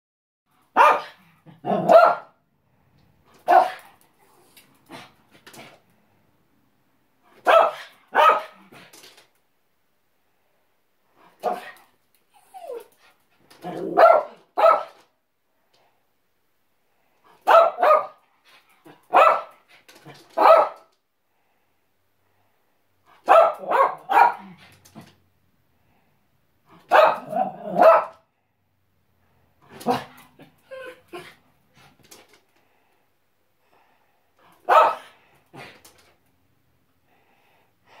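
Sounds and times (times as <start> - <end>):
small dog barking: 0.7 - 2.4, 3.4 - 3.9, 7.4 - 8.7, 11.4 - 11.8, 13.6 - 15.0, 17.4 - 18.2, 18.9 - 19.6, 20.4 - 20.9, 23.2 - 24.6, 26.9 - 28.2, 29.8 - 30.2, 34.6 - 35.7.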